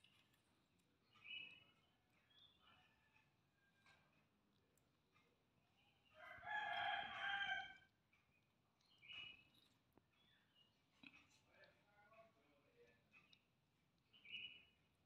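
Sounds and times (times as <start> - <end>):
rooster crowing: 6.2 - 7.9.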